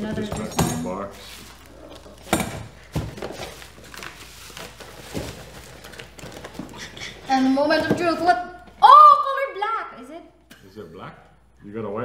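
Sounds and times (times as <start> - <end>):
plastic bags and bubble wrap rustling: 0.0 - 9.0.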